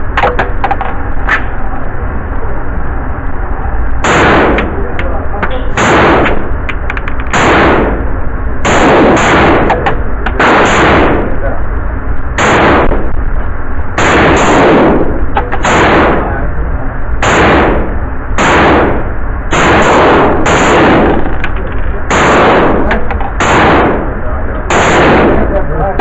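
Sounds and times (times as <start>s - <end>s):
gunshots echoing indoors: 4.0s - 5.0s, 5.6s - 6.6s, 7.3s - 11.6s, 12.4s - 13.2s, 14.0s - 16.4s, 17.2s - 26.0s.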